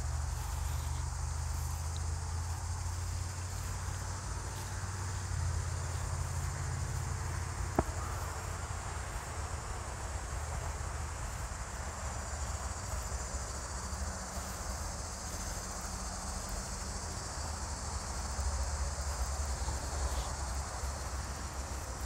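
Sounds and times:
crickets chirping: 0.0s - 22.0s.

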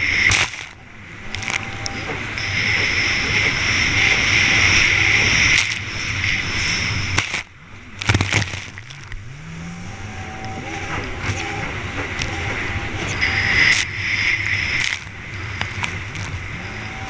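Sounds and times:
jet ski engine at full throttle: 0.0s - 17.0s
spray and wind on microphone: 0.0s - 17.0s
hull smacking onto water: 7.1s - 9.3s.

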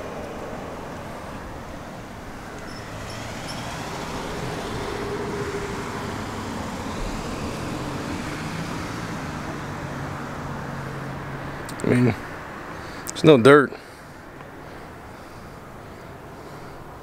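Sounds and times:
low engine hum: 0.0s - 13.0s
road traffic rushing: 0.0s - 17.0s.

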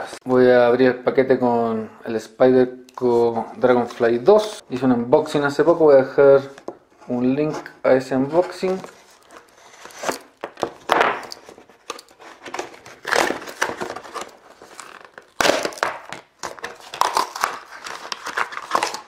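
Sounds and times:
packaging crinkling and tearing: 8.6s - 19.0s.

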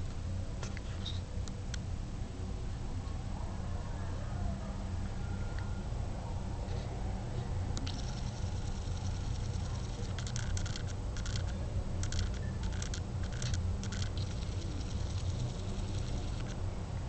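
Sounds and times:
low hum: 0.0s - 17.0s
camera autofocus motor clicks: 7.8s - 16.6s.

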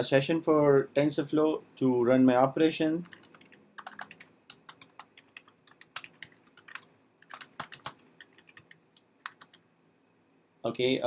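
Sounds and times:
typing on a keyboard: 3.0s - 9.6s.

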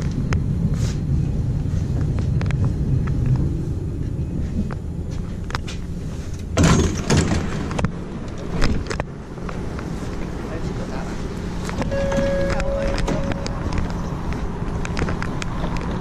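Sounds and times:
tram rumbling: 0.0s - 16.0s
tram door opening: 2.0s - 9.1s, 11.5s - 16.0s.

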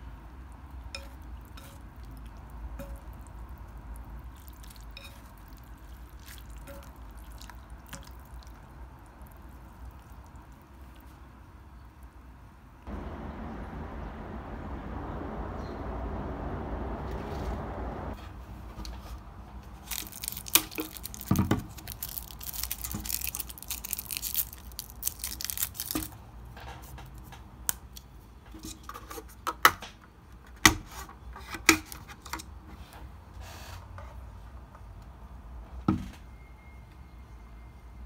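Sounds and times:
steady hum: 12.9s - 18.2s
packaging crinkling and tearing: 19.8s - 26.2s.

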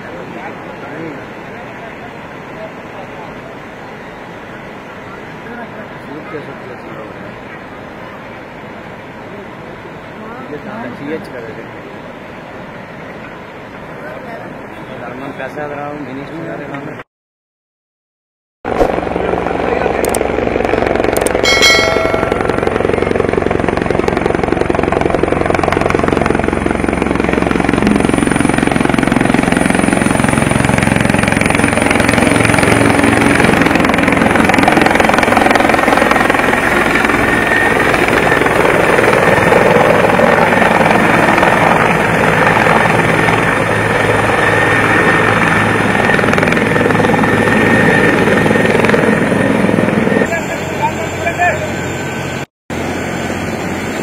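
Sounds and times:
high whine: 18.7s - 24.6s
helicopter rotor chop: 18.7s - 54.0s.

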